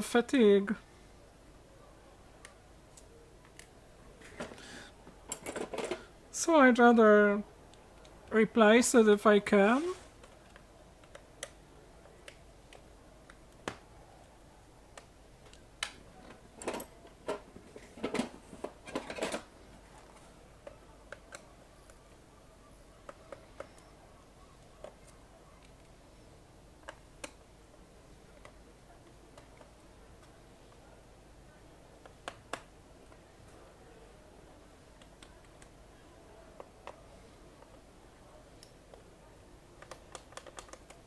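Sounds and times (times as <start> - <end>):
screwdriver clicks and taps: 39.8 - 41.0.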